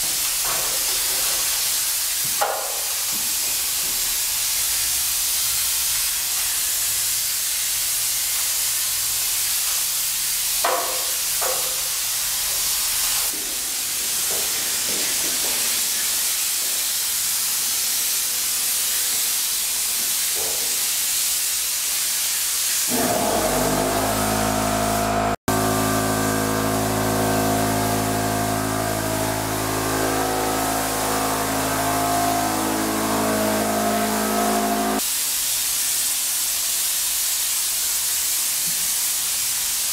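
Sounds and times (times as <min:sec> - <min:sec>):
spray gun hissing: 0:00.0 - 0:39.9
machine hum: 0:22.9 - 0:35.0.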